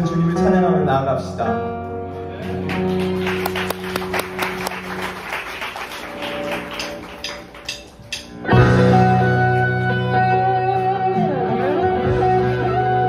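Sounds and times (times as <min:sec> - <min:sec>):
electric guitar playing: 0:01.9 - 0:13.0.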